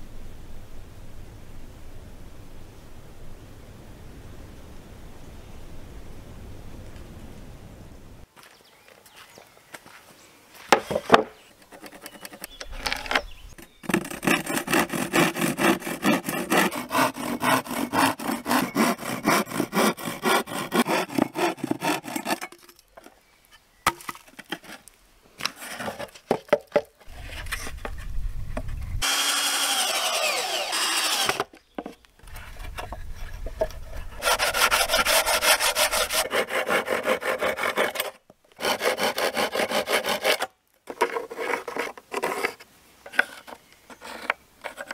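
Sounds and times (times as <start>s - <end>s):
hand saw cutting board: 13.8s - 22.4s, 29.0s - 31.5s, 34.0s - 42.6s.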